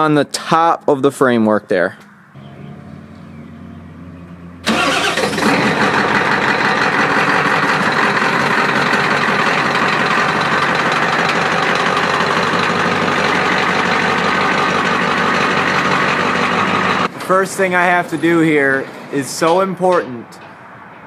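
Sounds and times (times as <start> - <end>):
truck engine idling: 2.4 - 20.5.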